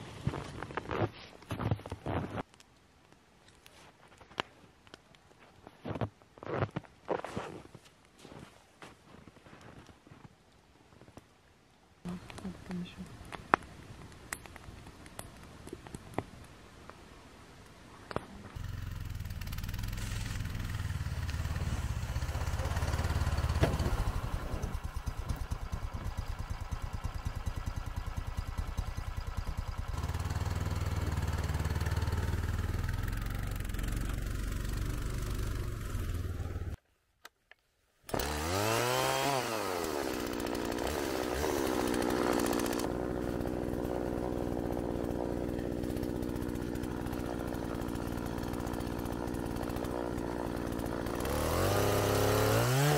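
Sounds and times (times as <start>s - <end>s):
snowmobile engine running: 18.6s - 36.8s.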